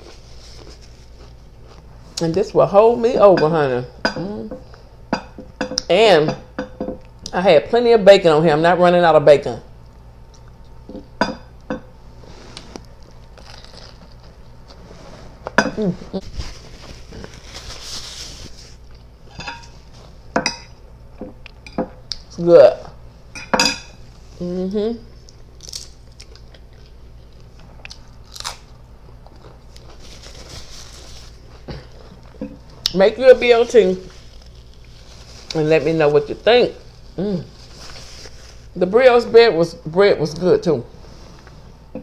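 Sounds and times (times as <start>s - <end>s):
soft chewing: 0.0s - 2.3s, 9.8s - 11.1s, 25.2s - 33.0s
chips crunching: 12.8s - 14.4s, 25.3s - 35.7s.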